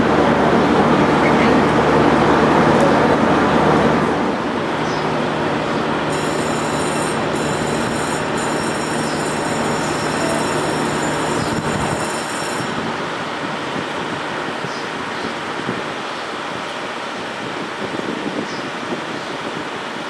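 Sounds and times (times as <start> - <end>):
high-pitched whine: 0.0 - 13.0
diesel railcar engine drone: 0.0 - 17.7.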